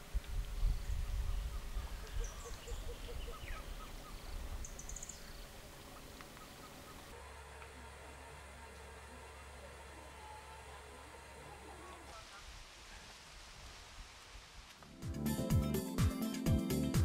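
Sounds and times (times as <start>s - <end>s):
birds calling: 0.9s - 7.2s.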